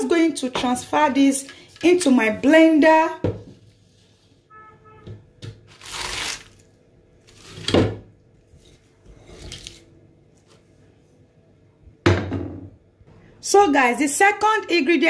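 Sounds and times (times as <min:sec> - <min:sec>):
spinach leaves rustling: 0:05.7 - 0:06.6.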